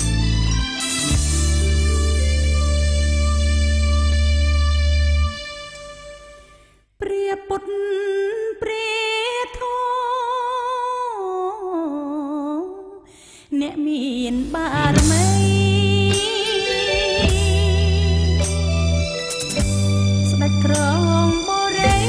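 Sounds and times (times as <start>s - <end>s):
guitar music track: 0.0s - 6.5s, 14.8s - 22.0s
woman singing unaccompanied: 7.0s - 18.0s, 20.4s - 22.0s.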